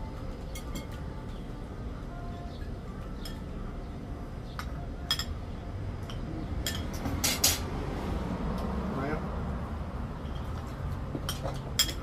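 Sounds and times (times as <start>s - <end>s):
cutlery clinking on plates: 6.0s - 7.6s, 11.2s - 12.0s.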